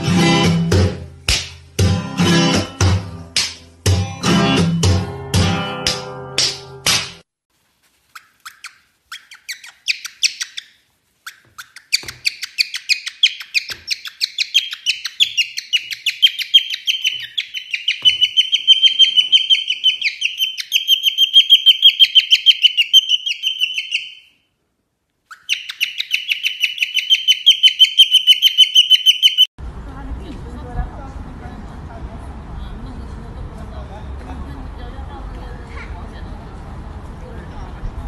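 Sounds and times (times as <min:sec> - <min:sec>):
cockatiel chirping: 0:08.1 - 0:24.4, 0:25.3 - 0:29.5.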